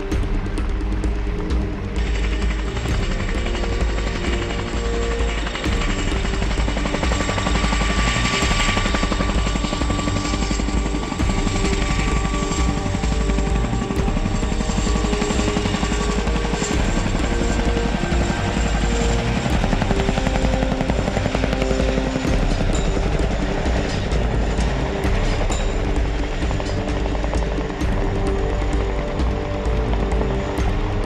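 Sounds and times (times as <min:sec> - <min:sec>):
helicopter rotors chopping: 0:00.0 - 0:31.0
thin steady whine: 0:00.0 - 0:31.0.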